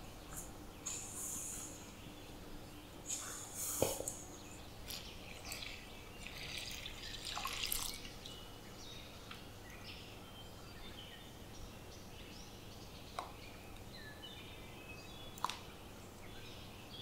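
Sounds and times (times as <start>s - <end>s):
water pouring into flour: 5.4s - 8.3s.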